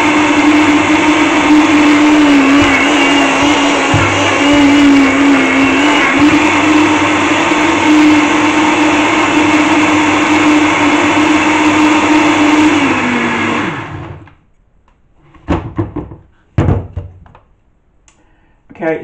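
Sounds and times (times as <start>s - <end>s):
blender running: 0.0s - 14.3s.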